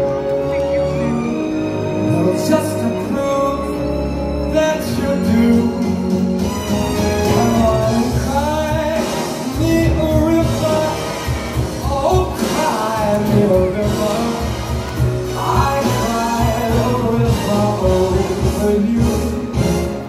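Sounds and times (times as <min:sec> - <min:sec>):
person singing: 0:07.2 - 0:20.0.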